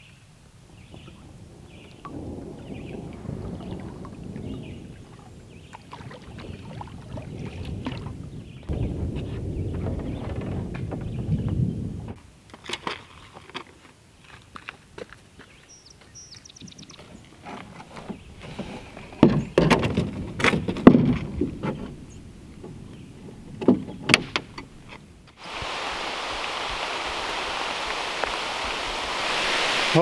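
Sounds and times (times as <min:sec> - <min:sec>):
heavy rain hiss: 0:00.0 - 0:05.7, 0:25.4 - 0:30.0
paddle knocking and splashing: 0:01.9 - 0:13.6, 0:17.4 - 0:30.0.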